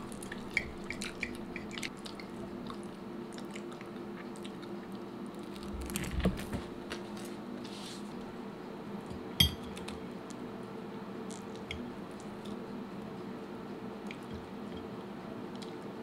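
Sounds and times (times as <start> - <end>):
steady low hum: 0.0 - 16.0
metal clinking on plate: 9.4 - 9.8.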